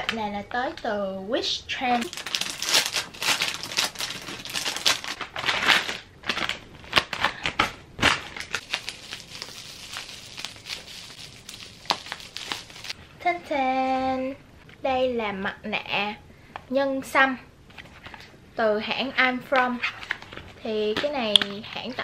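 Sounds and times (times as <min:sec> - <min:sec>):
plastic bag crinkling: 0:02.0 - 0:13.0
plastic wrap crinkling: 0:02.0 - 0:13.0.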